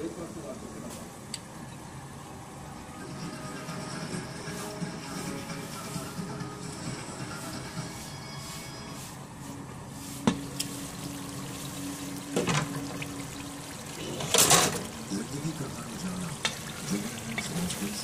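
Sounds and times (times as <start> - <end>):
curry bubbling in a pot: 10.5 - 18.0.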